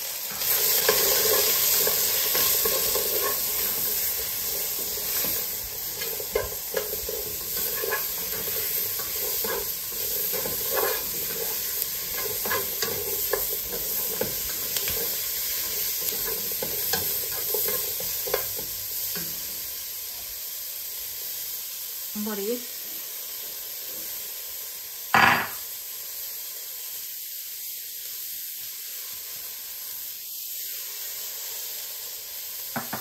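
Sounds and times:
onion sizzling in hot oil: 0:00.0 - 0:33.0
spoon scraping a pan: 0:00.3 - 0:19.6.

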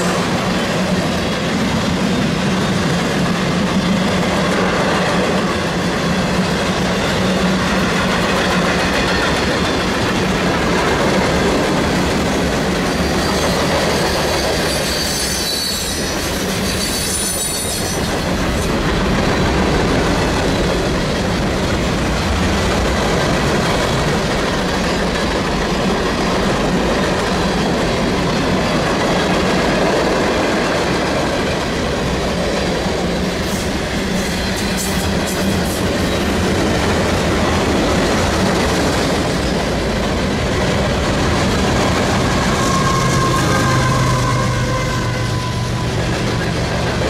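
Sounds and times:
freight train cars rumbling past: 0:00.0 - 0:47.0
high wheel squeaks: 0:12.8 - 0:18.3
locomotive engine hum: 0:35.0 - 0:47.0.

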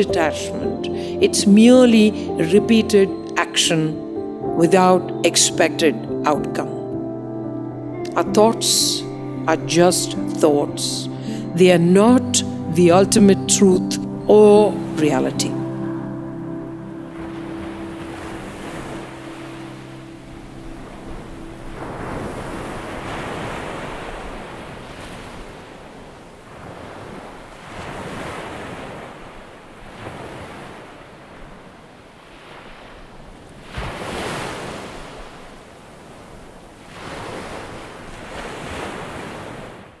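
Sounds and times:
waves breaking on beach: 0:16.7 - 0:40.0.

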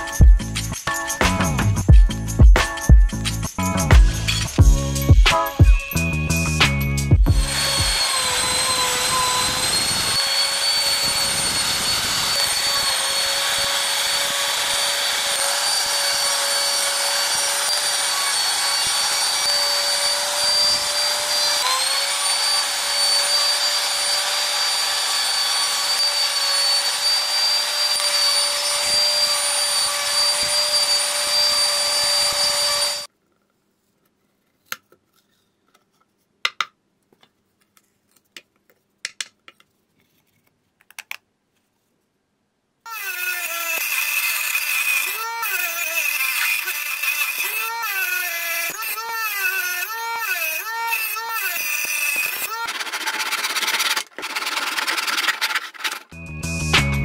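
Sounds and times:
trim router whining: 0:07.2 - 0:33.1, 0:42.9 - 0:56.2.

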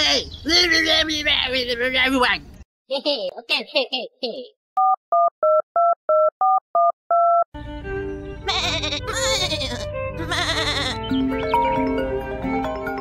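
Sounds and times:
telephone keypad beeps: 0:04.8 - 0:07.5
music: 0:07.6 - 0:13.0.

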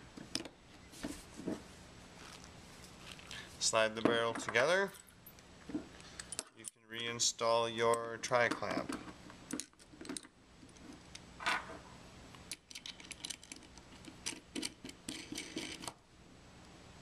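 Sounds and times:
small metallic clicks and clinks: 0:04.5 - 0:07.1.

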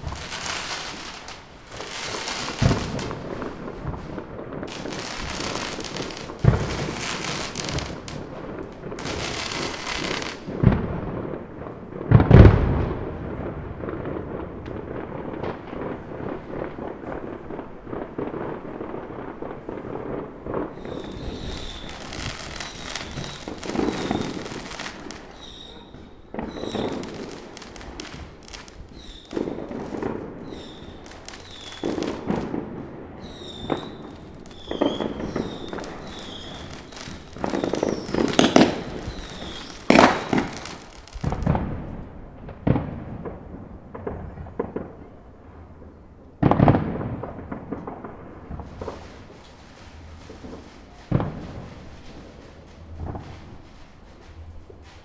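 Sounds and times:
fireworks screeching: 0:00.0 - 0:10.6, 0:19.8 - 0:41.6, 0:47.7 - 0:55.0
fireworks crackling and popping: 0:00.0 - 0:55.0
heavy fireworks bangs: 0:00.0 - 0:55.0.

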